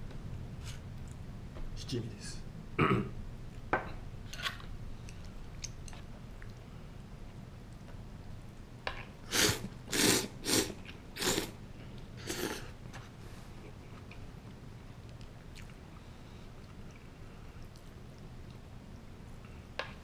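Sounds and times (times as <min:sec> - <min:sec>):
man slurping noodles: 0:09.3 - 0:11.6, 0:12.2 - 0:12.7
chewing: 0:15.0 - 0:16.0.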